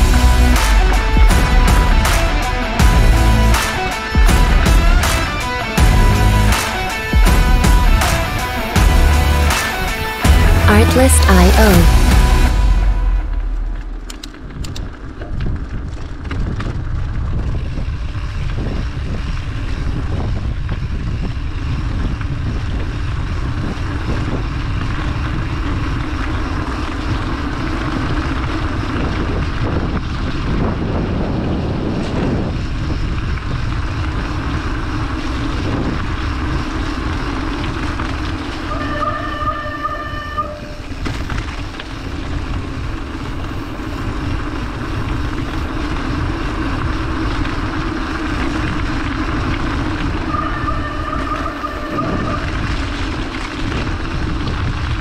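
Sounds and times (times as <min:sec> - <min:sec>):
tyres rolling on wet asphalt: 0:13.3 - 0:55.0
wind buffeting microphone: 0:13.6 - 0:55.0.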